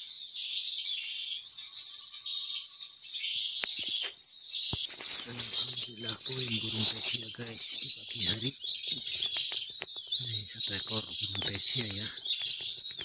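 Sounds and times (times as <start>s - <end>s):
small birds chirping: 0.0s - 13.0s
faint clicks: 8.9s - 13.0s.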